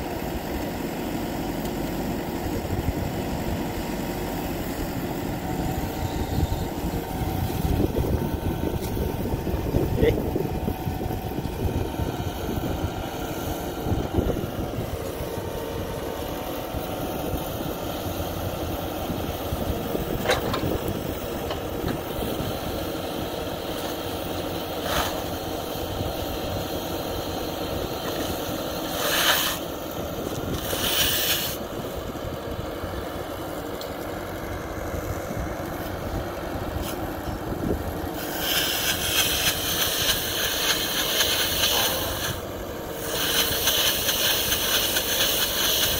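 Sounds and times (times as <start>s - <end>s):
tractor engine running: 0.0s - 45.9s
hisses: 28.1s - 29.7s, 30.5s - 31.7s, 38.1s - 45.9s.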